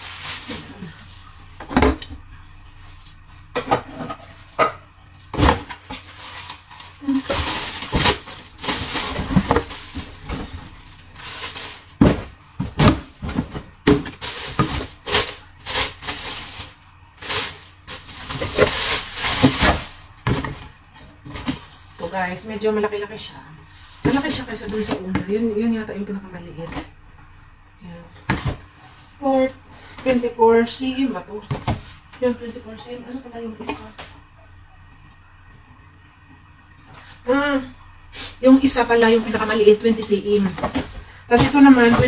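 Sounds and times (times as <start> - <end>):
plastic wrapping crinkling: 0.0 - 1.3, 5.9 - 12.1, 14.0 - 20.2.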